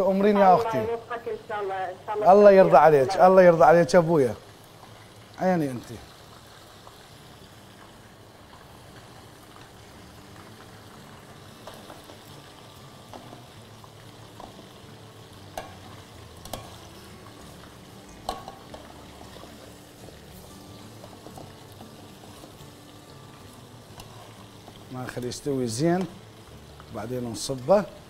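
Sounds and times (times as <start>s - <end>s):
food sizzling in a pan: 0.0s - 28.0s
spoon knocking against pan: 18.2s - 18.8s.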